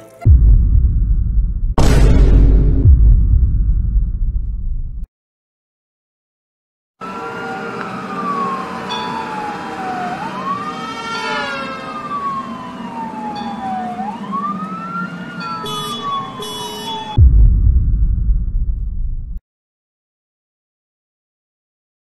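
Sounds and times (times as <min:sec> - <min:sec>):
loud low rumble: 0:00.2 - 0:05.1, 0:17.2 - 0:19.4
second siren sweeping down: 0:07.0 - 0:17.2
siren wailing: 0:07.0 - 0:17.2.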